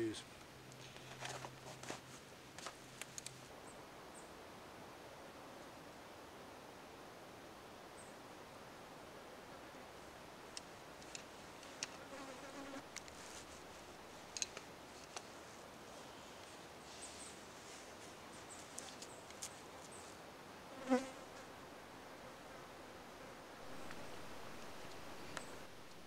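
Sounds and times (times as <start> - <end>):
flies buzzing past: 9.2 - 14.0, 18.1 - 26.0.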